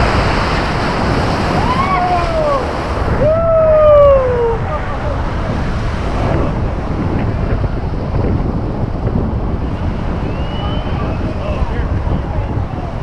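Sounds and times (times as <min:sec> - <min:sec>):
whitewater rapids rushing: 0:00.0 - 0:07.2
wind buffeting microphone: 0:00.0 - 0:13.0.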